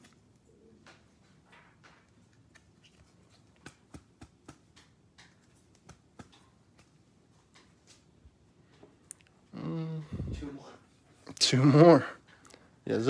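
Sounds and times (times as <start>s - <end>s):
soft rustles of handling: 0.0s - 3.9s.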